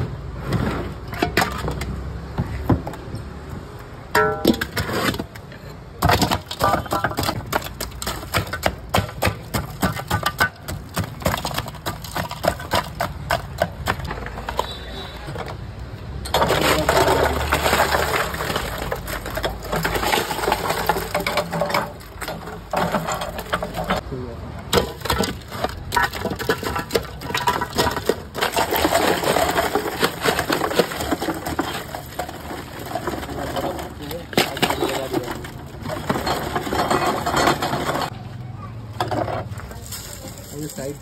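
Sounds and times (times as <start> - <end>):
ice pick chipping ice: 6.0 - 15.1, 16.3 - 24.0, 24.7 - 38.1.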